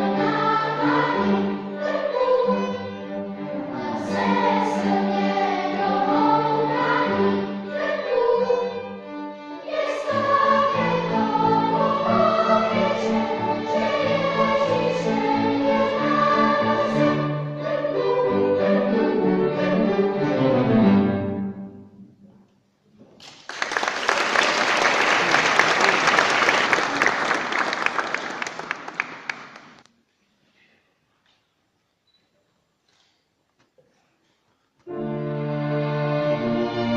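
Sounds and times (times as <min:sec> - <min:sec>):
violin and cello: 0:00.0 - 0:21.2, 0:34.9 - 0:36.9
children's choir singing: 0:00.0 - 0:21.5
audience applauding: 0:23.2 - 0:29.9.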